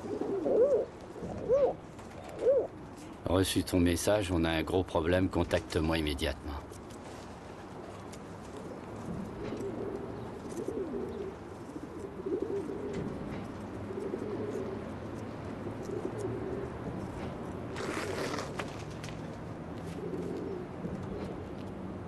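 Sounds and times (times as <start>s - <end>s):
pigeons cooing: 0.0s - 2.8s, 9.2s - 17.0s, 19.9s - 21.4s.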